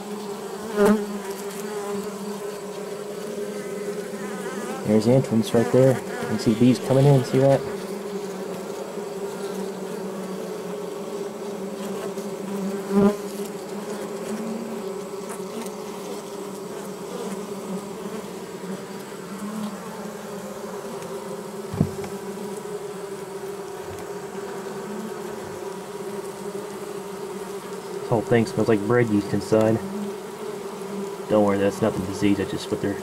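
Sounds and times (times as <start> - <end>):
honeybees buzzing: 0.0 - 33.0
brief knocks: 21.7 - 22.2.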